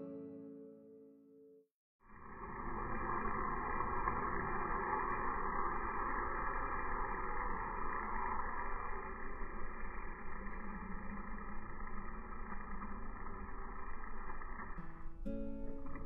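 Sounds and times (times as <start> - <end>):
model train motor whirring: 2.5 - 15.2.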